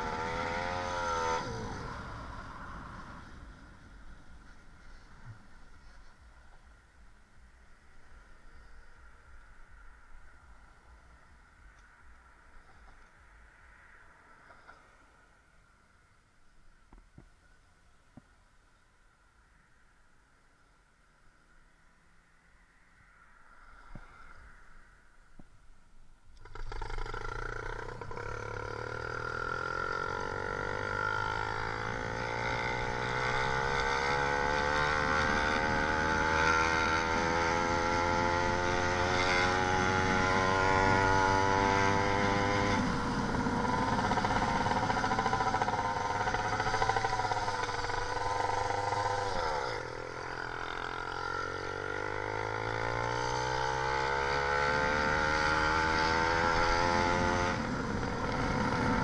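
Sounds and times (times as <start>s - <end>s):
two-stroke engine revving: 26.4s - 59.0s.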